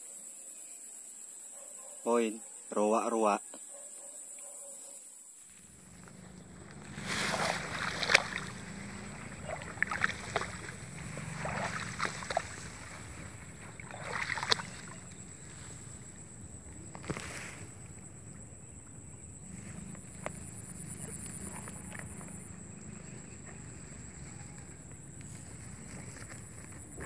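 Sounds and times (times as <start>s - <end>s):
grass swishing and rustling: 5.5s - 16.0s, 16.9s - 17.7s.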